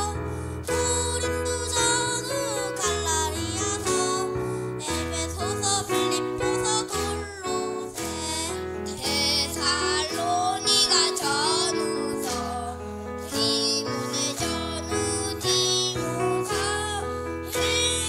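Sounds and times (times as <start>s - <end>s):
children singing into microphones: 9.0s - 12.7s.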